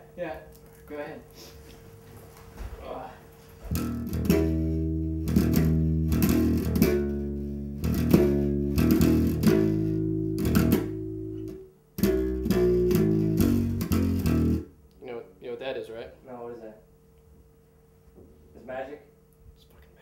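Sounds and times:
electric bass guitar plucked: 0:03.7 - 0:14.8.

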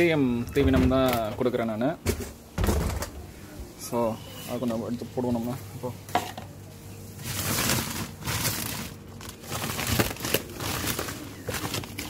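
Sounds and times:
plastic sack crinkling: 0:07.1 - 0:12.0.

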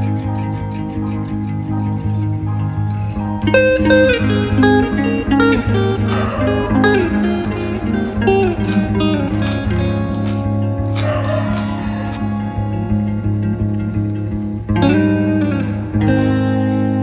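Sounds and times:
guitar tune over low notes: 0:00.0 - 0:17.0
plucked melody: 0:00.0 - 0:17.0.

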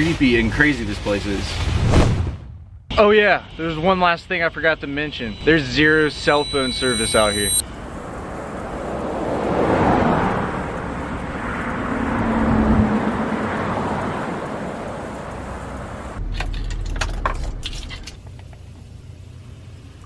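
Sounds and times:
cars passing on a road: 0:04.9 - 0:17.0.

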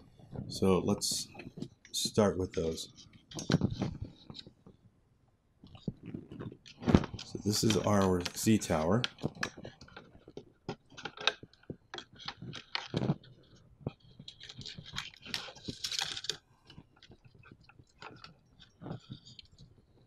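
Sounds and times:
wires rustling: 0:00.0 - 0:04.9, 0:05.6 - 0:20.0.

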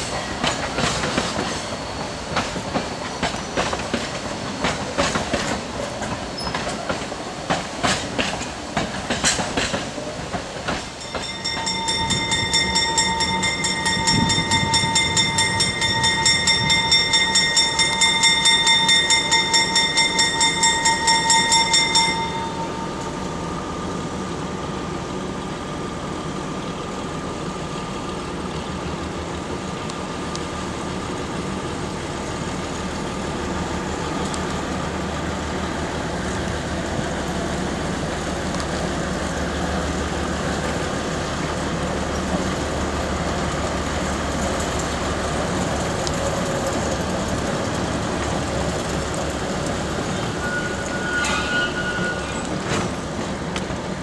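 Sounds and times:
train wheels clicking over rail joints: 0:00.0 - 0:23.3, 0:26.9 - 0:54.0
bell ringing fast: 0:11.0 - 0:23.0.

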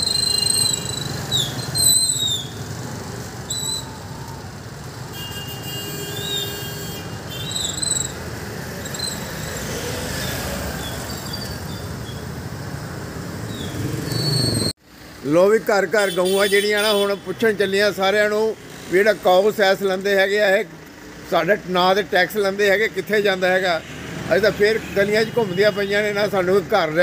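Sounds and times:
gliding high chirps and whistles: 0:00.0 - 0:02.6, 0:03.5 - 0:04.0, 0:07.4 - 0:08.2
street traffic: 0:00.0 - 0:27.0
motorcycles and scooters running: 0:07.0 - 0:15.3, 0:18.5 - 0:21.8.

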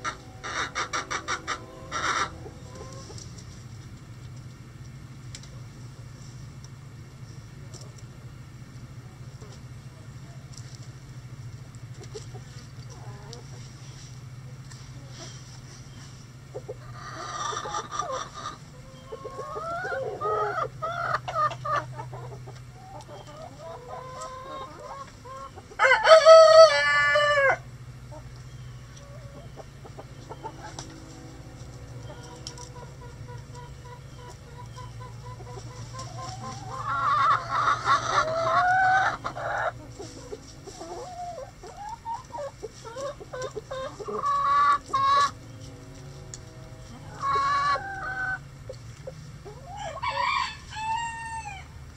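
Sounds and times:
roosters crowing: 0:00.0 - 0:03.5, 0:16.5 - 0:51.9
hens clucking and calling: 0:00.0 - 0:04.6, 0:09.0 - 0:51.9.

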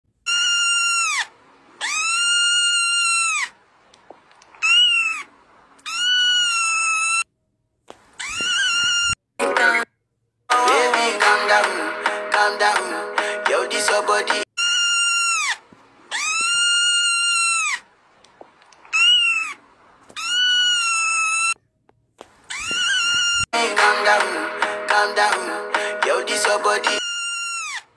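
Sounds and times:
kitten meowing: 0:00.3 - 0:03.5, 0:04.6 - 0:07.2, 0:08.2 - 0:09.2, 0:14.6 - 0:17.8, 0:18.9 - 0:21.6, 0:22.5 - 0:23.5.

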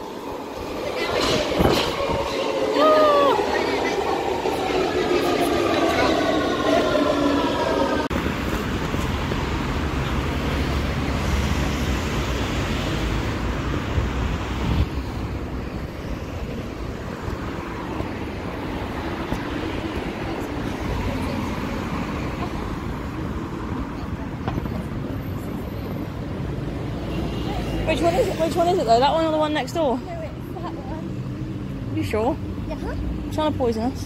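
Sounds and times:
underground train whine: 0:00.0 - 0:30.7
cars driving past: 0:00.0 - 0:34.0.

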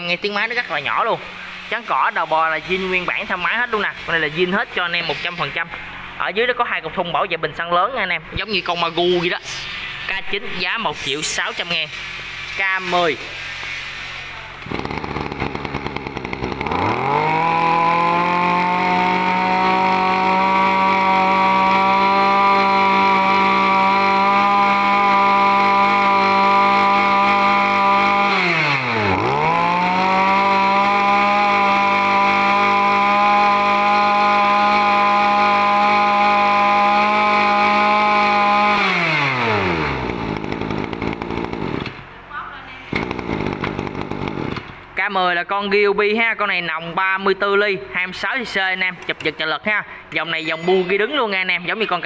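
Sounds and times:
two-stroke engine revving: 0:14.5 - 0:42.0, 0:42.9 - 0:44.8.

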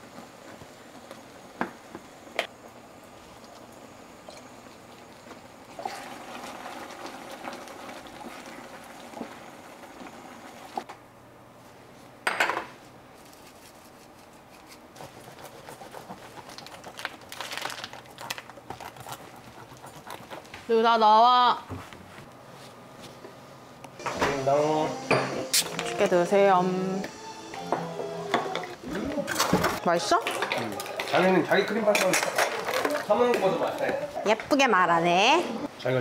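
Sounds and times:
sauce bubbling in pan: 0:03.0 - 0:10.8
dishes and utensils clinking: 0:27.7 - 0:33.1.

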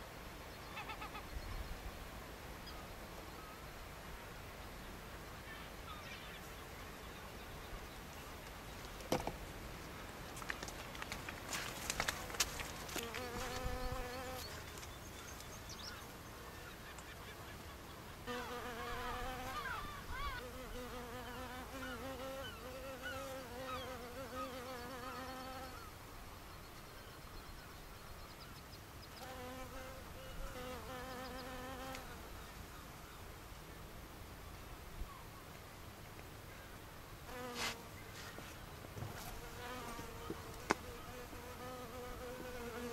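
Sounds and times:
bee buzzing in flight: 0:12.9 - 0:14.7, 0:18.2 - 0:25.8, 0:29.2 - 0:32.2, 0:39.0 - 0:42.9.

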